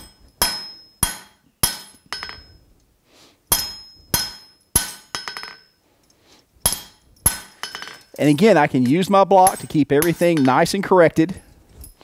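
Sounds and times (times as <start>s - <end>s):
hammer striking metal on anvil: 0.0s - 2.5s, 3.5s - 5.7s, 6.6s - 8.1s, 8.8s - 10.8s.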